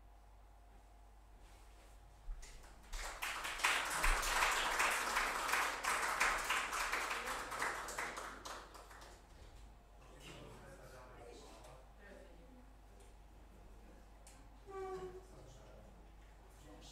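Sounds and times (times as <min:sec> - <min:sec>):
small audience applauding: 0:02.4 - 0:09.5.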